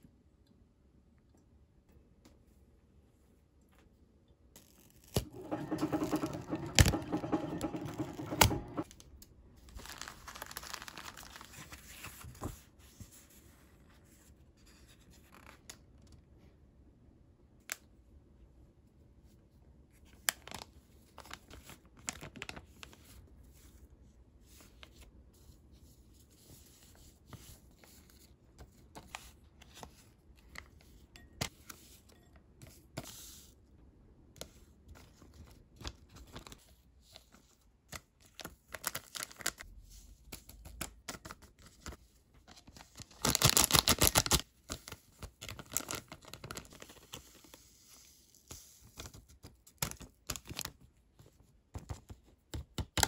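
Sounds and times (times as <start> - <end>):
plastic sachets crinkling: 9.6 - 11.9, 38.2 - 39.6, 42.6 - 47.2
plastic sachet tearing: 9.7 - 11.6, 42.9 - 47.0.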